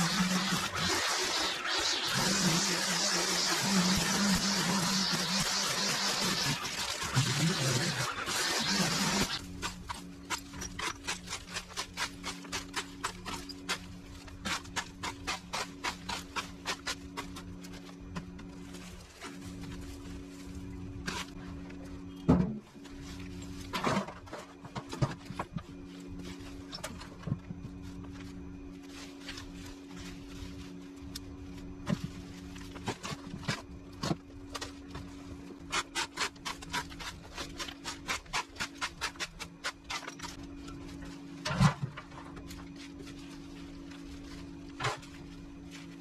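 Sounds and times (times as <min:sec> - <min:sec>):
weeds rustling and tearing: 0:00.0 - 0:09.5.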